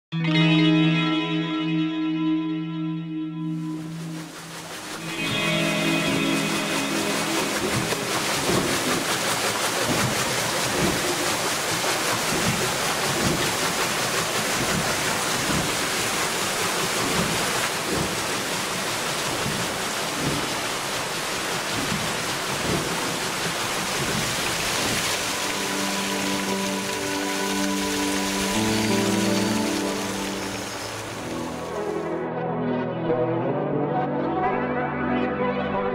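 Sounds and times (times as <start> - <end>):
water splashing: 3.6 - 32.1
water rushing down wooden flume: 3.7 - 32.2.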